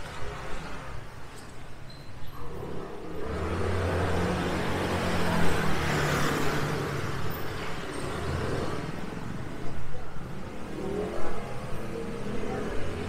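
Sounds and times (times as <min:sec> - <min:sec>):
vehicle passing by: 0:02.6 - 0:09.6.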